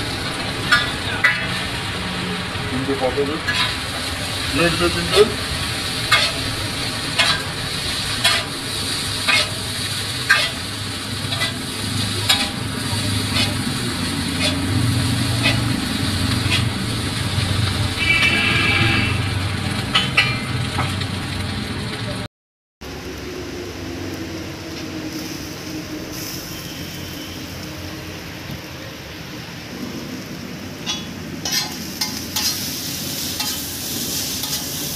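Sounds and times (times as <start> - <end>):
noodles sizzling on a griddle: 0.0 - 22.2, 24.3 - 34.9
metal spatula scraping griddle: 3.5 - 3.9, 5.9 - 16.8, 19.8 - 20.9, 30.8 - 34.9.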